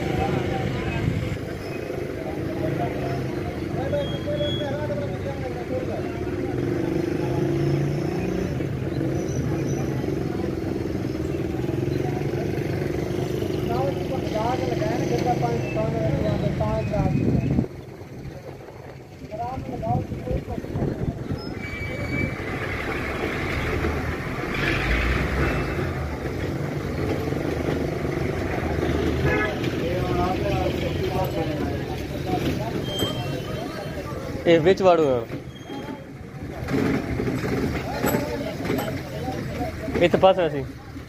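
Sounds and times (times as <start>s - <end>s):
heavy vehicle engine running: 22.0s - 41.0s.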